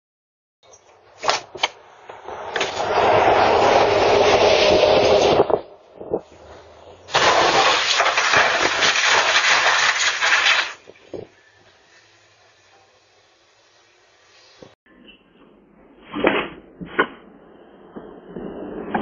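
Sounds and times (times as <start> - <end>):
bus crashing and scraping: 1.5 - 5.7, 6.3 - 12.3.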